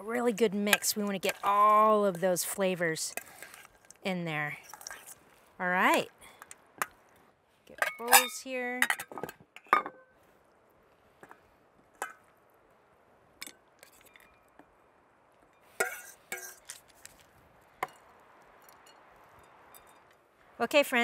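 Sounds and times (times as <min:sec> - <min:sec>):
metal clinking against enamel bowls: 0:07.7 - 0:10.1.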